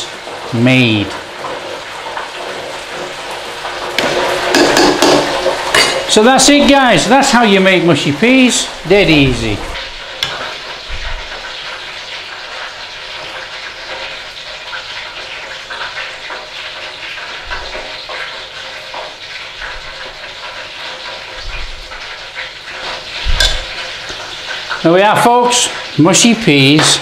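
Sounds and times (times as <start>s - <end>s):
steady hiss: 3.9s - 14.0s.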